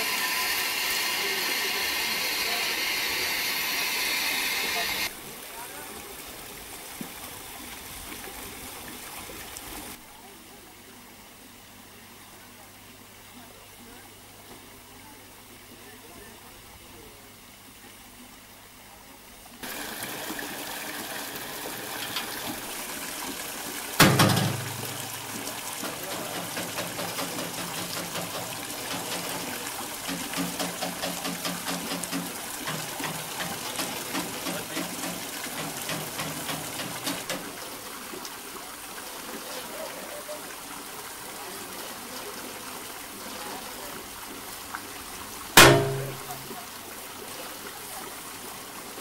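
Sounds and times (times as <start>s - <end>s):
water gushing into tank: 0.0s - 5.1s, 19.6s - 39.4s
loud metallic clang: 24.0s - 25.4s, 45.6s - 46.4s.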